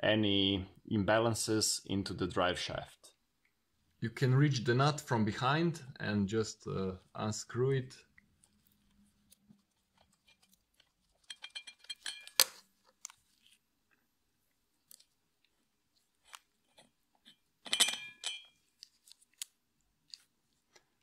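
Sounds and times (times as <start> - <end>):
metal tools clinking: 10.2 - 12.6, 17.6 - 18.6
metal hardware jangling clatter: 11.2 - 12.5, 17.6 - 18.6.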